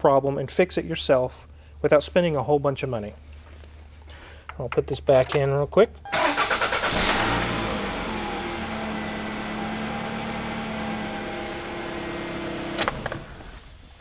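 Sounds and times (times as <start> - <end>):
car engine idling: 6.2 - 12.8.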